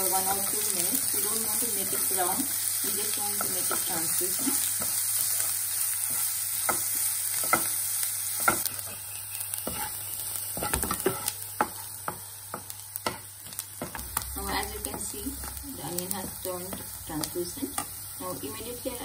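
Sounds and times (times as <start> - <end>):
onion sizzling in oil: 0.0 - 19.0
spoon scraping and tapping pan: 9.6 - 10.0, 10.6 - 14.0.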